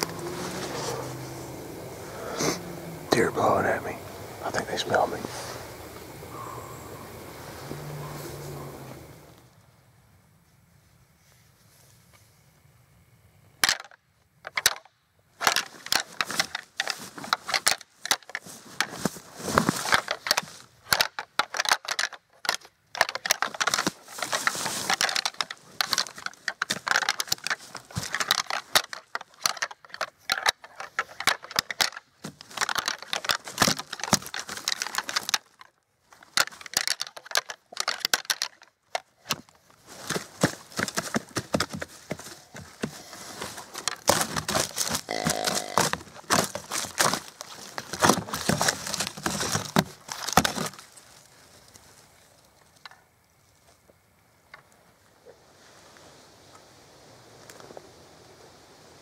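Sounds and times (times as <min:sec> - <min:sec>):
antlers clashing and rattling: 0:00.0 - 0:09.2, 0:13.6 - 0:51.2.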